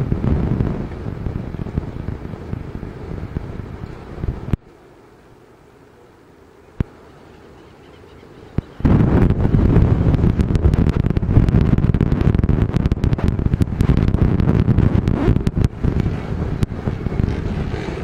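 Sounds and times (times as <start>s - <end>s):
wind buffeting microphone: 0.0s - 4.7s, 8.4s - 18.0s.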